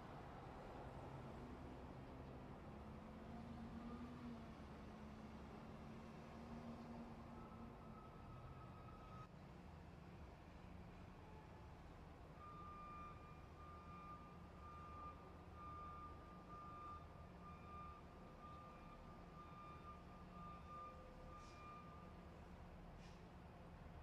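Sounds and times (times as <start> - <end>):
faint electronic beep: 7.4 - 9.3, 12.4 - 22.1.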